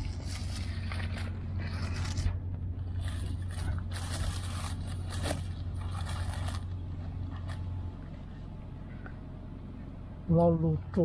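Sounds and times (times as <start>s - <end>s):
paper wrapper crinkling: 0.0s - 7.8s
steady low hum: 0.0s - 11.0s.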